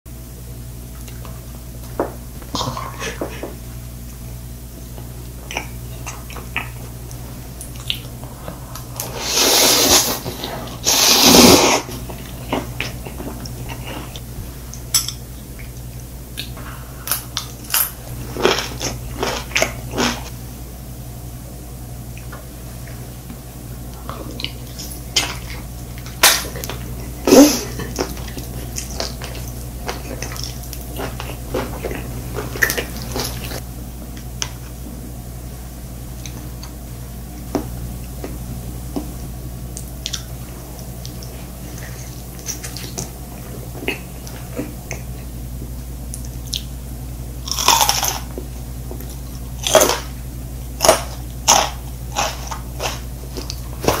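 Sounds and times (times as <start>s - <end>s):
low hum: 0.1s - 54.0s
person chewing wet food: 4.8s - 20.3s, 23.8s - 34.9s, 36.1s - 46.7s, 47.4s - 54.0s.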